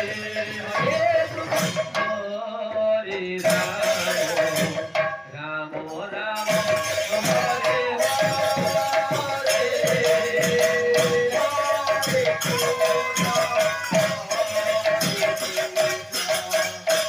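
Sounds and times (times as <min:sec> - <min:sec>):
barrel drum beating: 0:06.4 - 0:17.0.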